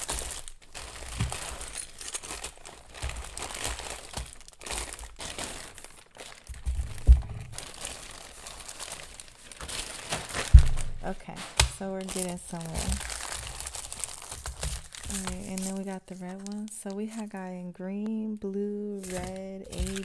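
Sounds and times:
plastic packets crinkling: 0:00.0 - 0:17.4, 0:19.0 - 0:20.0
packets knocking on table: 0:10.2 - 0:11.8.

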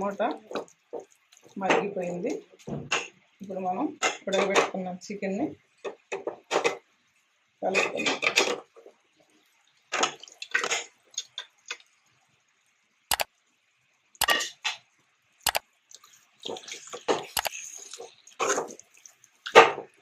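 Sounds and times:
spoon stirring in a pan: 0:00.0 - 0:04.8, 0:07.6 - 0:09.0, 0:09.9 - 0:11.9, 0:15.9 - 0:20.0.

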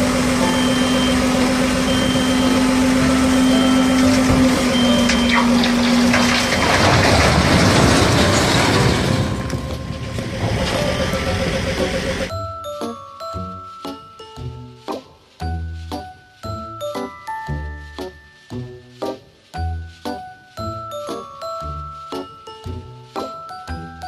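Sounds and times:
truck engine whining: 0:00.0 - 0:12.3
stone slabs crashing to ground: 0:04.3 - 0:10.9.

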